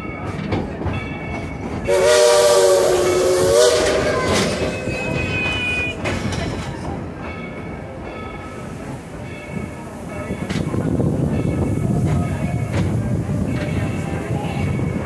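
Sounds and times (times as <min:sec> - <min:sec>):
train rumbling on track: 0:00.0 - 0:15.0
steam locomotive whistle: 0:01.9 - 0:06.0.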